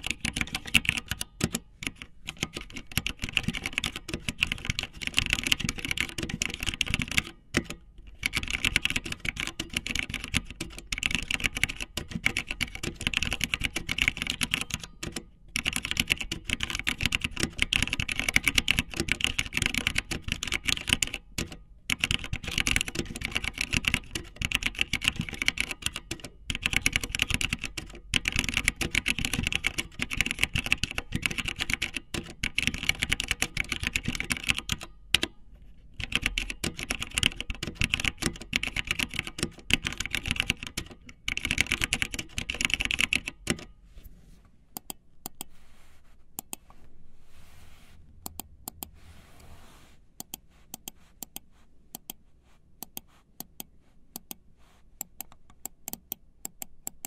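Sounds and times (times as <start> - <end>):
fast keyboard typing: 0.0 - 35.3, 36.0 - 43.7.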